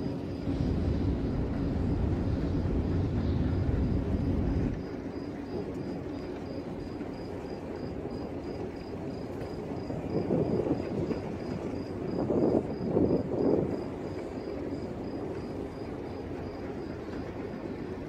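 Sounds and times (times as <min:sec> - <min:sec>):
low rumble: 0:00.0 - 0:07.5.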